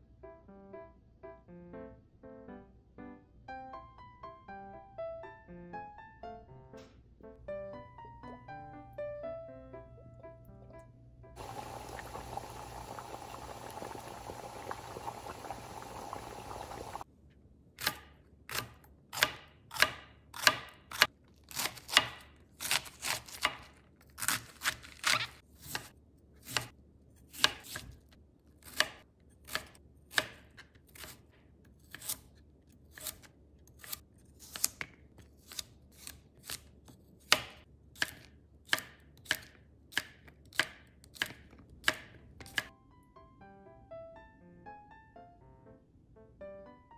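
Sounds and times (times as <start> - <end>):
water boiling in a pot: 11.4 - 17.1.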